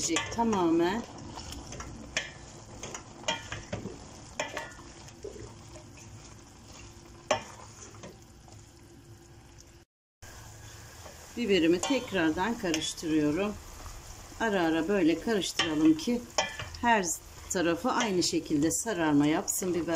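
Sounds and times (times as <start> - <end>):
spoon stirring in pot: 0.0 - 8.2, 15.3 - 19.9
pot sizzling: 0.0 - 19.9.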